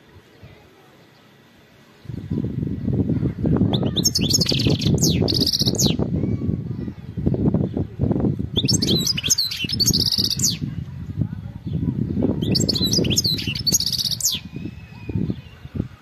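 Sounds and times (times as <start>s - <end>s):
low rumbling noise: 1.6s - 16.0s
goldfinch twittering: 3.7s - 6.0s, 8.6s - 10.7s, 12.4s - 15.4s.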